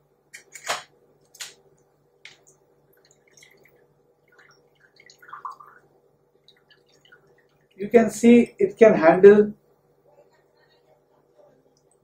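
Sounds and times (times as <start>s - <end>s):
pump gurgles and drips: 2.9s - 7.8s.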